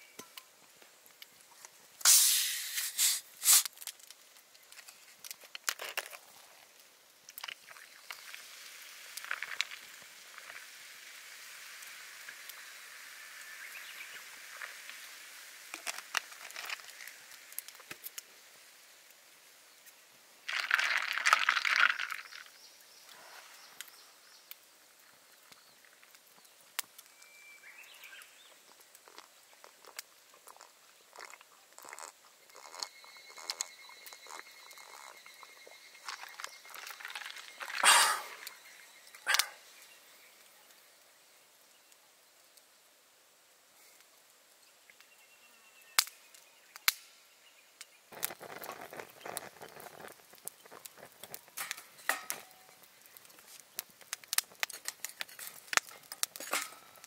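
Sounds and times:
soda pouring and fizzing: 2.0s - 19.1s, 20.4s - 24.4s, 27.7s - 39.9s, 48.1s - 57.0s
ice clinking: 20.5s - 22.5s, 30.5s - 38.5s.

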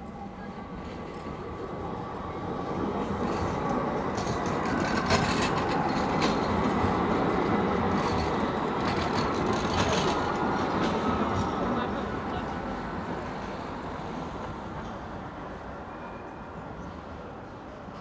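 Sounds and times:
tram passing: 0.0s - 18.0s
wheels clicking on rails: 3.0s - 11.6s.

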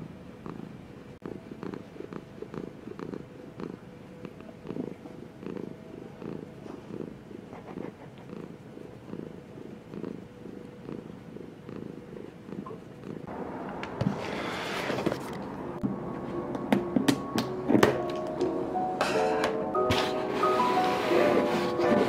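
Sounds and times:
cat purring: 0.4s - 13.3s.

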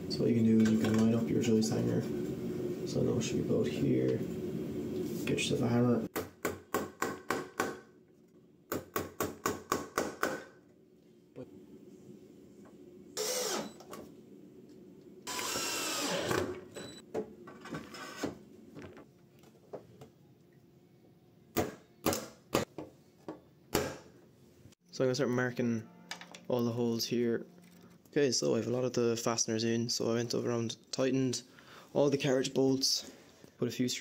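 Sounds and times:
cordless drill running: 13.2s - 13.7s, 15.3s - 16.6s.

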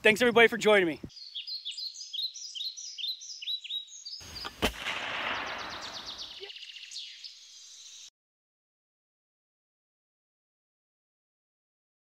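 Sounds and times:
bird chirps: 1.1s - 8.1s
gunshot with rushing tail: 4.6s - 6.5s.

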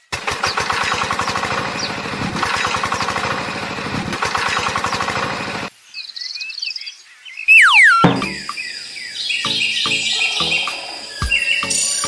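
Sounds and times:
tractor engine running: 0.0s - 5.7s
faint bird chirps: 5.8s - 12.0s.

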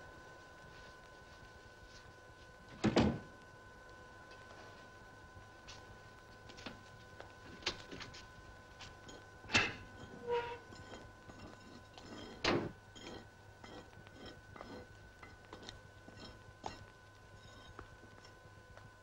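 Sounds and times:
steady hum: 0.0s - 19.0s
short squeak: 10.0s - 10.7s
metal door clicks and scrape: 12.4s - 12.7s.

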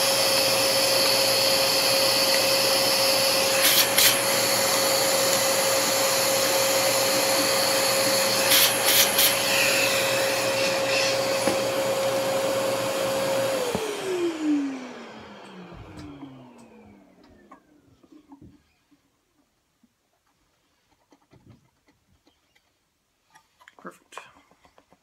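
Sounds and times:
shop vacuum running: 0.0s - 17.8s
vacuum motor winding down: 0.0s - 17.8s.

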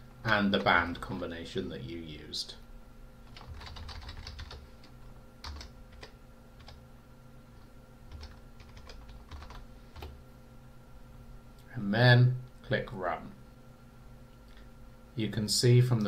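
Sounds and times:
typing on computer keyboard: 3.3s - 4.6s, 5.4s - 6.8s, 8.1s - 10.1s.

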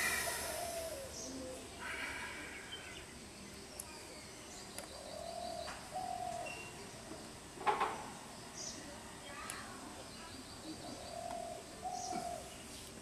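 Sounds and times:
person breathing out hard: 0.0s - 1.2s
bird calls: 0.0s - 6.9s, 10.2s - 12.9s.

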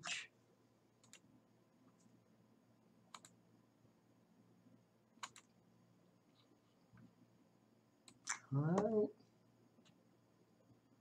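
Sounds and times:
computer mouse clicks: 1.0s - 1.3s, 3.1s - 3.4s, 5.2s - 5.6s, 8.0s - 8.9s.

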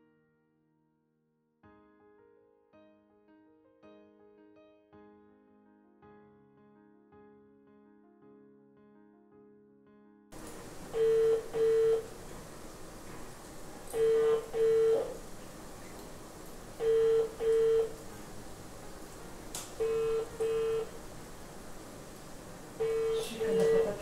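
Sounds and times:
telephone ringback tone: 10.8s - 12.2s, 13.9s - 15.2s, 16.8s - 18.0s, 19.8s - 21.0s, 22.8s - 24.0s.

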